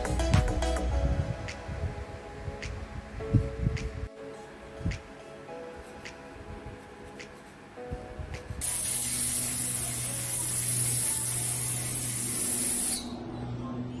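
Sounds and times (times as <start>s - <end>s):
aerosol spray hiss: 8.6s - 13.2s.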